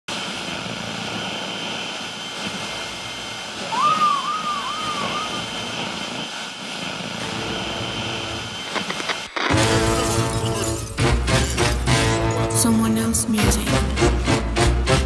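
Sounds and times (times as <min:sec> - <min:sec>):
rushing electronic drone: 0:00.6 - 0:13.1
whistle-like swoops: 0:03.6 - 0:06.5.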